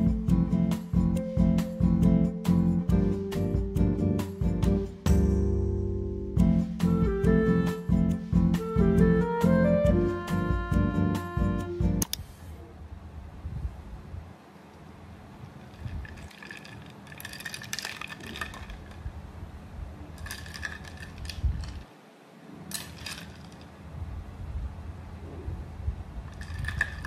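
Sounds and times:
handling noise: 15.5 - 19.3, 20.0 - 23.9, 26.3 - 27.0.

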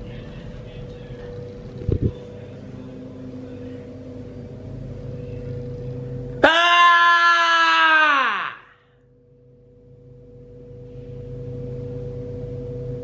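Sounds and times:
steady machine hum: 0.0 - 13.0.

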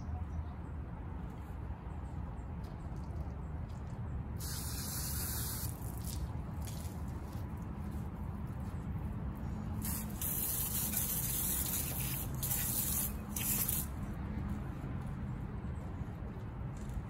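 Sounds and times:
spray hissing: 4.4 - 5.7, 9.8 - 13.8.

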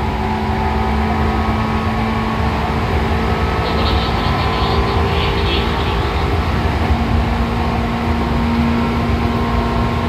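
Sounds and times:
wheels rumbling on rail: 0.0 - 10.0.

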